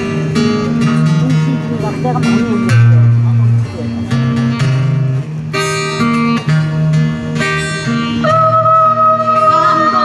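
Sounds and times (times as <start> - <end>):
acoustic guitar ensemble: 0.0 - 10.0.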